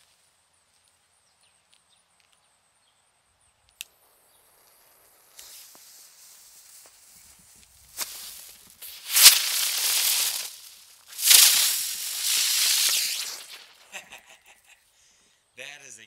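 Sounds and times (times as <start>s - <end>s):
firework fuse hissing: 4.4s - 14.3s.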